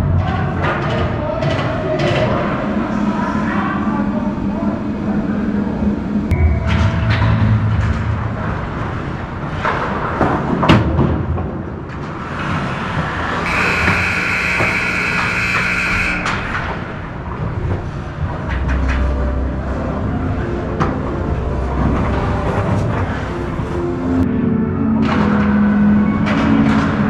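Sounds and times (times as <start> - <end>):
held tone: 13.5 - 16.5.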